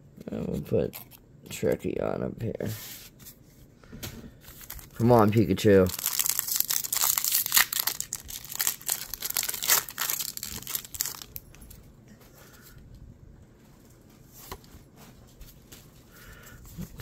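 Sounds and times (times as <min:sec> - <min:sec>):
foil wrapper tearing and crinkling: 0:04.5 - 0:11.4.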